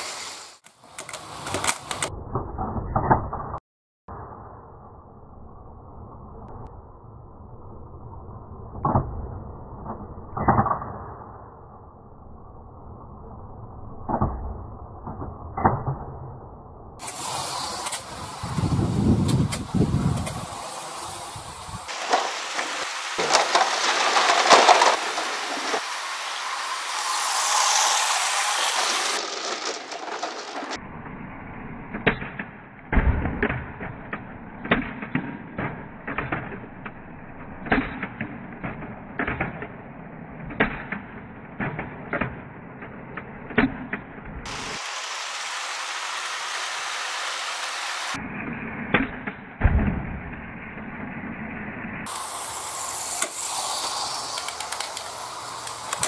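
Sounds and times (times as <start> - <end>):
steady noise: 17.0 - 32.0, 44.5 - 48.9, 50.3 - 56.0
foam dart blaster firing clacks: 52.1 - 56.0.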